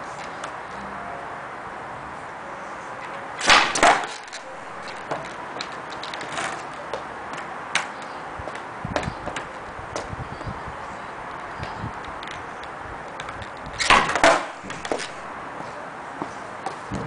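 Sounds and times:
skateboard light knocks and clicks: 0:03.0 - 0:10.1, 0:11.4 - 0:15.2
skateboard clacks on concrete: 0:03.4 - 0:10.1, 0:11.6 - 0:15.2.

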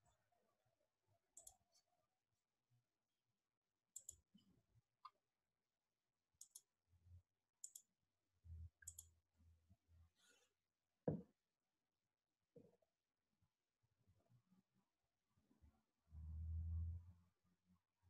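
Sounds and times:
faint low hum: 0:15.4 - 0:18.0.

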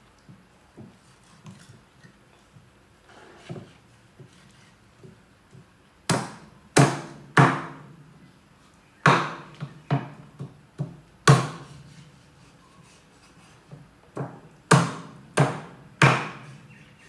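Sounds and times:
cleaver chopping meat on wood: 0:06.1 - 0:07.9, 0:09.0 - 0:11.6, 0:14.1 - 0:16.5.

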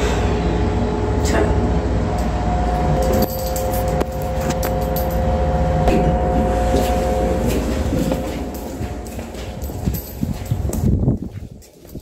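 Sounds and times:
lift cabin rumble and hum: 0:00.0 - 0:12.0.

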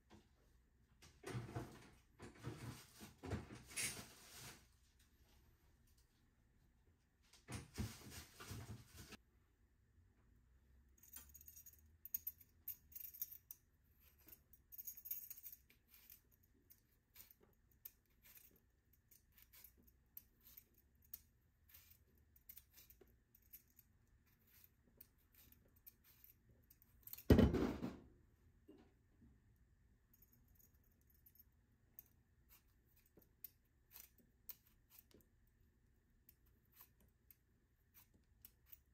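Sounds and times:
knife scraping potato skin: 0:15.6 - 0:27.1, 0:32.4 - 0:35.3, 0:36.2 - 0:38.9
knock: 0:27.3 - 0:28.0.

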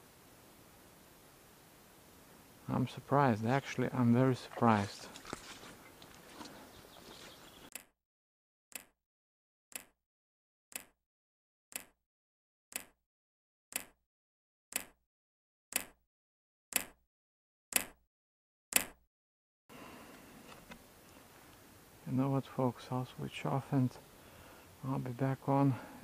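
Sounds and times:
sharp clock ticks: 0:08.7 - 0:09.0, 0:09.7 - 0:10.0, 0:10.7 - 0:11.0, 0:11.7 - 0:12.0, 0:12.7 - 0:13.0, 0:13.7 - 0:14.0, 0:14.7 - 0:15.0, 0:15.7 - 0:16.0, 0:16.7 - 0:17.0.

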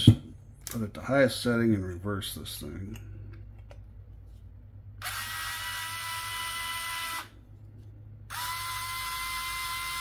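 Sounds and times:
electric screwdriver whining: 0:05.0 - 0:07.3, 0:08.3 - 0:10.0.

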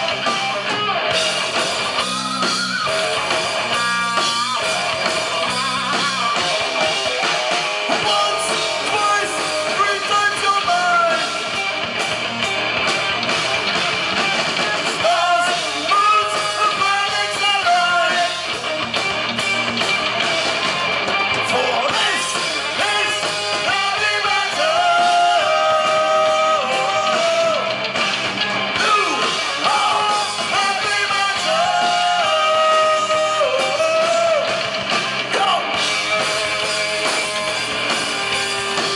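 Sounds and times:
bass guitar: 0:00.0 - 0:38.9
distorted electric guitar: 0:00.0 - 0:38.9
drum kit: 0:00.0 - 0:38.9
man singing: 0:07.9 - 0:11.5, 0:14.6 - 0:18.5, 0:21.5 - 0:27.8, 0:28.8 - 0:34.6.

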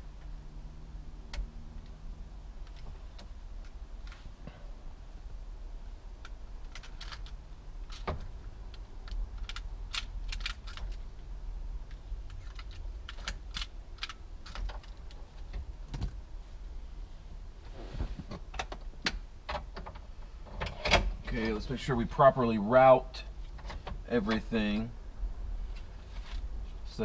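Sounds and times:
low steady hum: 0:00.0 - 0:27.0
plastic and metal parts clicking: 0:06.2 - 0:11.0, 0:11.9 - 0:15.2.

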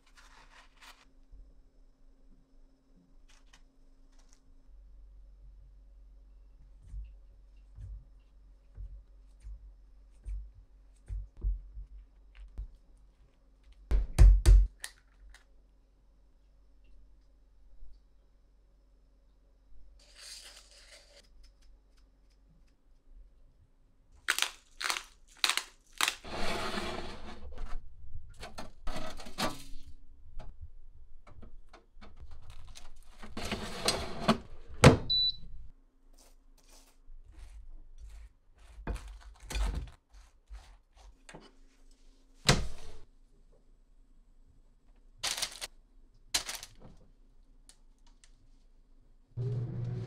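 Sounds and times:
rustling: 0:45.2 - 0:45.7.

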